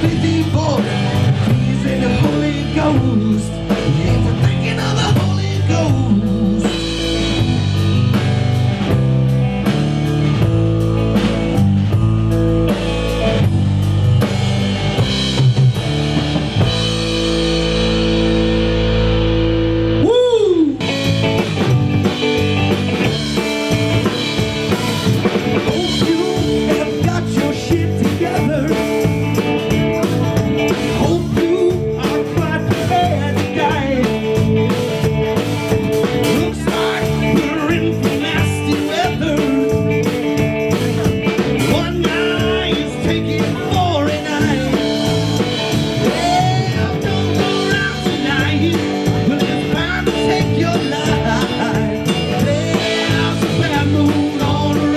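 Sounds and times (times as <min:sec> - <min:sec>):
person singing: 0:00.0 - 0:07.0, 0:20.0 - 0:21.0, 0:25.6 - 0:29.4, 0:30.0 - 0:34.8, 0:36.0 - 0:54.9
drum kit: 0:00.0 - 0:54.9
electric guitar: 0:00.0 - 0:54.9.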